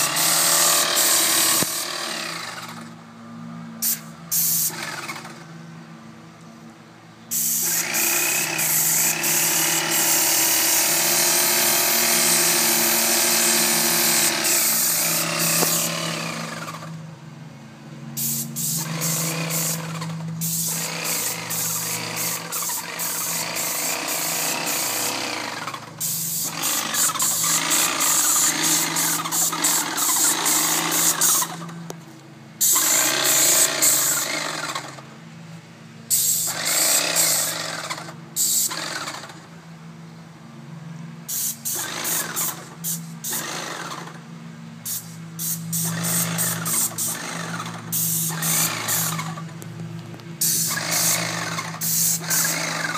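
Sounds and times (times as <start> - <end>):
spray gun hissing: 0.0 - 2.4, 3.8 - 4.8, 7.3 - 16.8, 18.2 - 31.7, 32.6 - 34.8, 36.1 - 37.6, 38.4 - 38.7, 41.3 - 43.5, 44.8 - 49.4, 50.4 - 52.9
paint sprayer pump humming: 0.0 - 3.0, 7.3 - 17.0, 18.2 - 31.9, 32.6 - 35.1, 36.1 - 39.4, 44.9 - 52.9.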